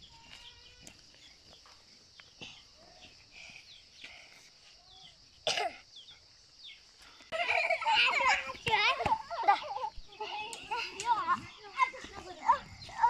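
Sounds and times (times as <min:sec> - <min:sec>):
faint birds chirping: 0:00.0 - 0:13.0
person coughing: 0:05.4 - 0:05.8.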